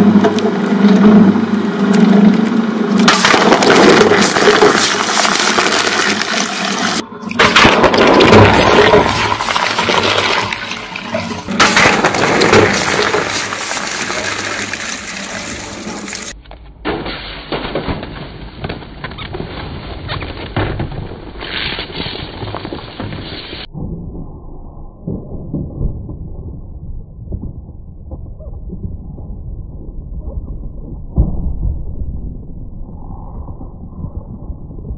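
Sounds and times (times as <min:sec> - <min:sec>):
shredder crushing cans: 0:03.0 - 0:16.4
soda hissing and splashing: 0:03.5 - 0:16.4.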